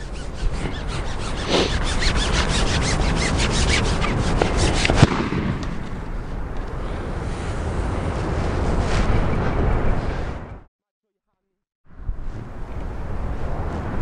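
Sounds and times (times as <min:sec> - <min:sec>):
fishing pole rasping over roller: 0:00.0 - 0:05.0
wind buffeting microphone: 0:00.0 - 0:10.7, 0:11.9 - 0:14.0.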